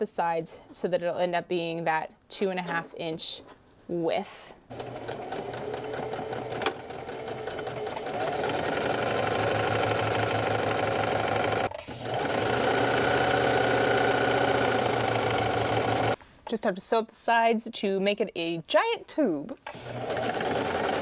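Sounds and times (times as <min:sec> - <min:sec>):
sewing machine stitching: 0:04.7 - 0:16.2, 0:19.7 - 0:21.0.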